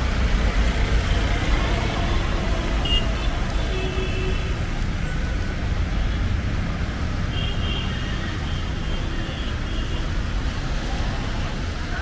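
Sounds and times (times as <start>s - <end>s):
passing vehicles rumble: 0.0s - 12.0s.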